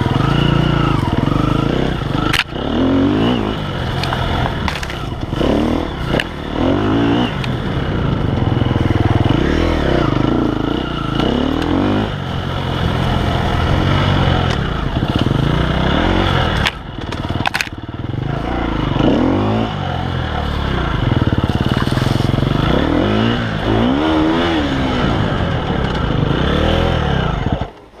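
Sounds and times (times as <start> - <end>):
dirt bike engine revving: 0.0 - 27.8
bike clattering over rough ground: 3.4 - 6.8, 10.3 - 19.1, 20.0 - 22.9.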